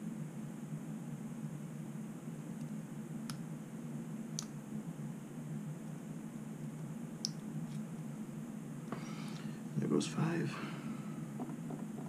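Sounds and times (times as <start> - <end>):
low background hum: 0.0 - 12.0.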